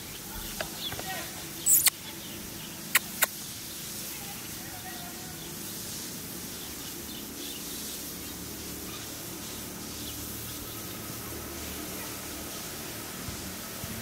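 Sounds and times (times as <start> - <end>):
high hiss: 0.0 - 14.0
faint high chirps: 1.6 - 3.4.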